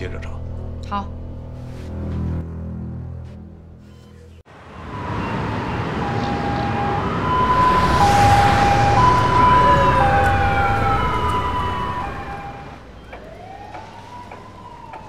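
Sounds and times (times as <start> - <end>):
ambulance two-tone siren: 4.5 - 15.0
road traffic: 4.5 - 15.0.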